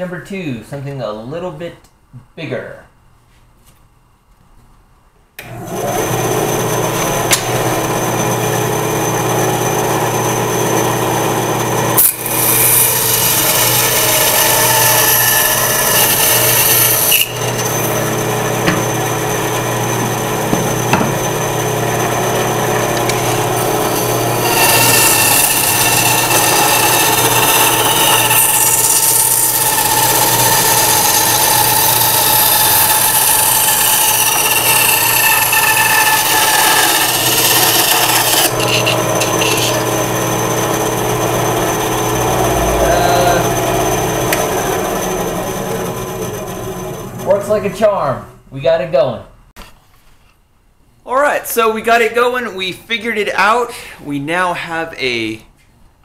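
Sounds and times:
band saw motor hum: 5.4 - 47.7
blade rasping through wood: 19.5 - 40.7.

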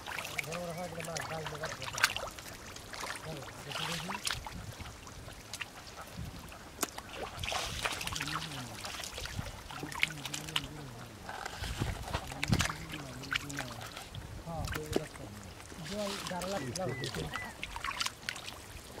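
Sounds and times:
short wet clicks and slaps: 6.8 - 7.0.

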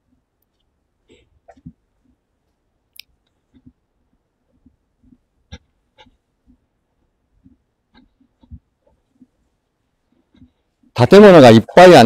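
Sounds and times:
man's voice: 11.0 - 12.0.

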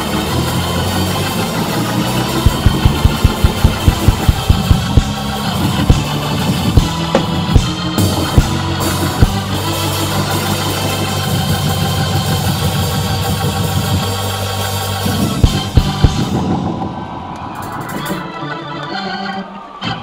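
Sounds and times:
organ sustained chords: 0.0 - 17.3, 18.0 - 20.0
drum hits: 2.4 - 9.6, 15.4 - 16.6.

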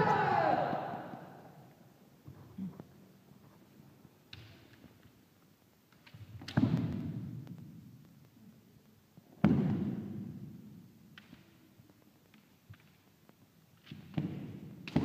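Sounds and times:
loud shouts echoing: 0.0 - 1.7.

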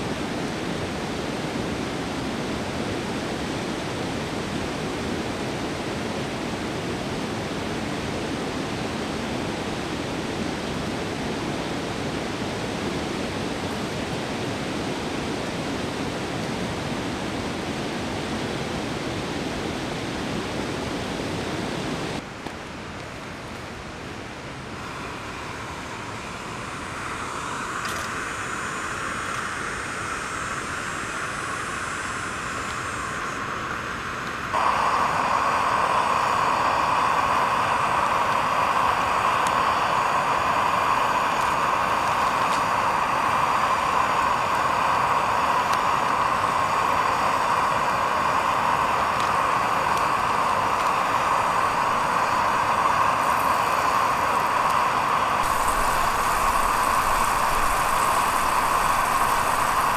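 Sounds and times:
faint steady hiss: 0.0 - 59.9
river rapids rushing: 33.4 - 59.9.

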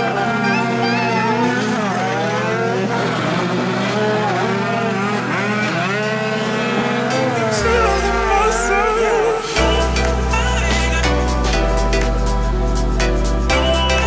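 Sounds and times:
scooter engines revving: 0.0 - 14.0.

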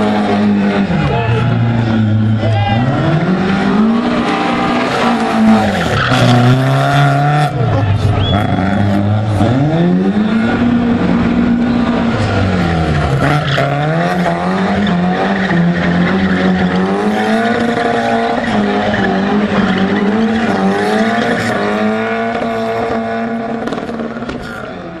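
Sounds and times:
car engine revving hard: 0.0 - 25.0
tyres squealing on cobbles: 13.2 - 22.5.

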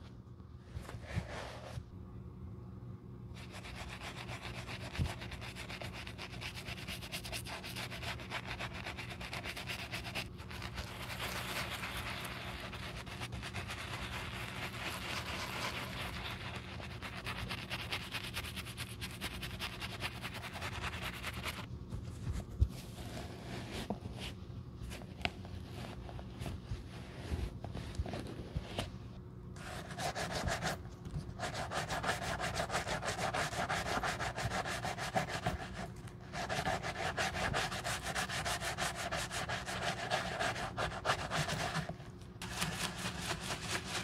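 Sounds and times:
brush scrubbing leather: 3.4 - 21.7, 31.4 - 44.0.

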